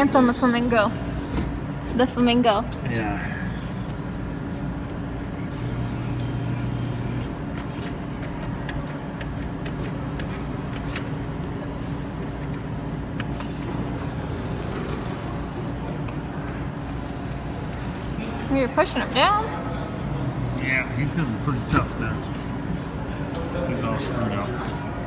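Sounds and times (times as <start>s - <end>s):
claw machine humming: 2.7s - 23.4s
motor tone: 5.3s - 8.1s.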